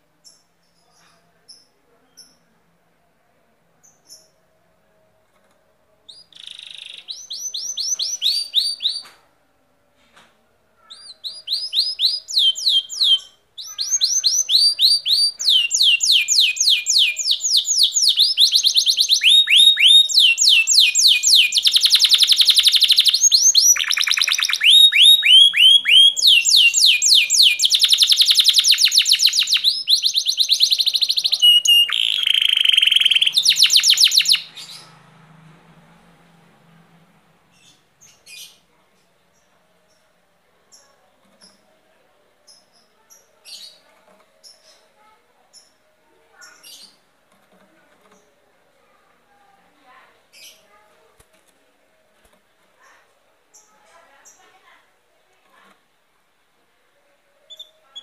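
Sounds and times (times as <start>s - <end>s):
canary singing: 6.0s - 9.2s, 10.8s - 35.2s, 42.4s - 48.3s, 49.9s - 51.0s, 57.4s - 58.0s.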